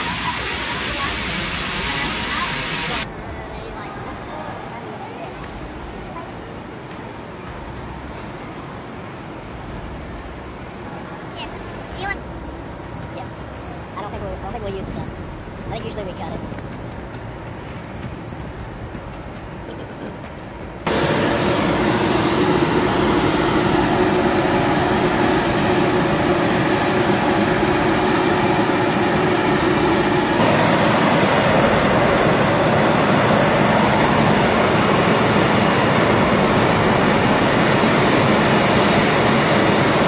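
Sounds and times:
jet aircraft noise: 0:00.0 - 0:03.1, 0:13.9 - 0:40.0.

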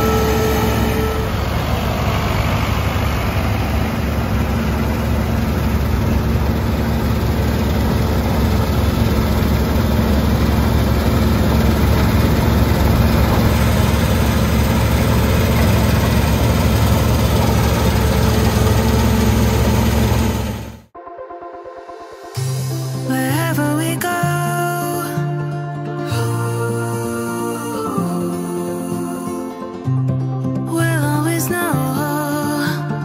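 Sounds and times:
combine harvester engine drone: 0:00.0 - 0:20.9.

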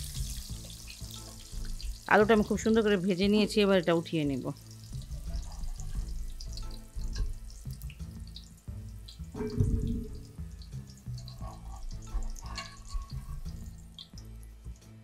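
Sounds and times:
oil splashing and dripping: 0:00.0 - 0:03.1, 0:04.4 - 0:14.9
hot oil bubbling and crackling: 0:00.0 - 0:15.0
skimmer knocking against pan: 0:09.2 - 0:13.6.

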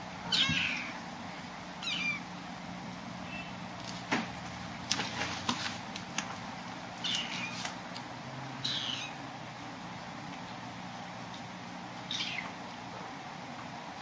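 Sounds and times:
kittens mewing: 0:00.2 - 0:01.1, 0:01.8 - 0:02.3, 0:07.0 - 0:07.6, 0:08.6 - 0:09.2, 0:12.0 - 0:12.7.

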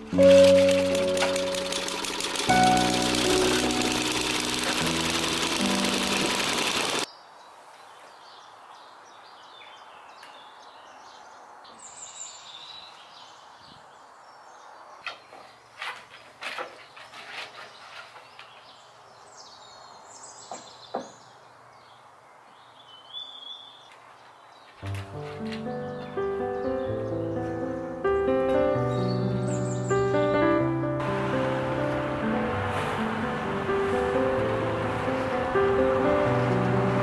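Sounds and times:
music: 0:00.0 - 0:06.8, 0:24.8 - 0:37.0
small tiller engine running: 0:00.0 - 0:07.1
birds chirping: 0:05.3 - 0:30.4.

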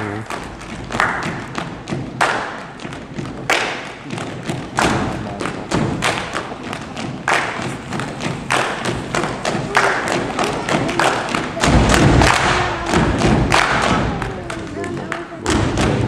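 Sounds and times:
body percussion claps and thumps: 0:00.0 - 0:16.0.

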